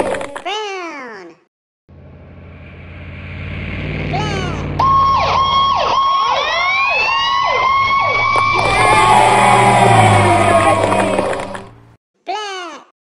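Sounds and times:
low engine rumble: 1.9s - 12.0s
fire truck siren: 2.1s - 12.0s.

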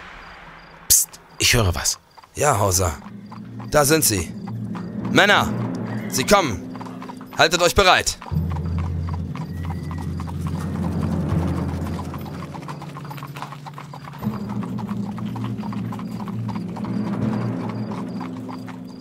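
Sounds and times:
low steady drone: 0.0s - 7.5s, 8.2s - 13.0s, 14.2s - 19.0s
horse hooves clip-clopping: 1.6s - 19.0s.

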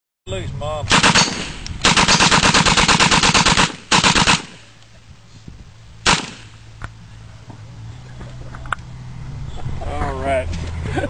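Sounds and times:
machine gun firing: 0.9s - 4.7s, 6.0s - 6.6s.

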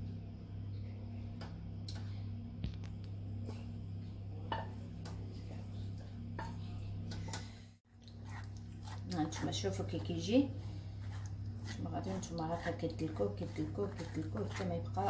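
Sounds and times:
steady low hum: 0.0s - 15.0s
saucepan scraping against sieve: 8.0s - 15.0s.

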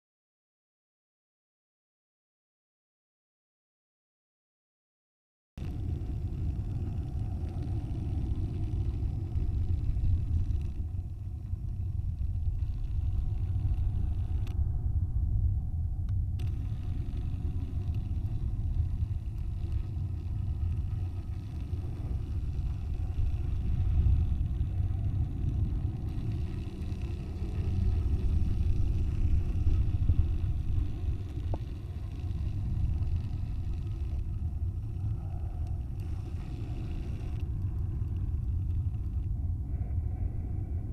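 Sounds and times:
wind rumbling on microphone: 5.6s - 40.9s.

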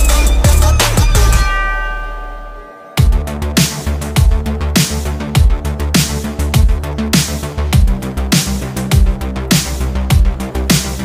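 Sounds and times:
bell-like chime: 0.0s - 5.1s
electronic dance music: 0.0s - 11.0s.

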